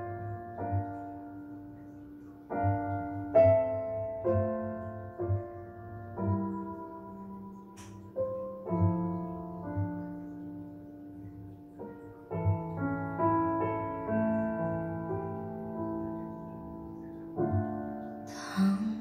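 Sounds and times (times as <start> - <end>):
piano chords over loudspeakers: 0.0 - 19.0.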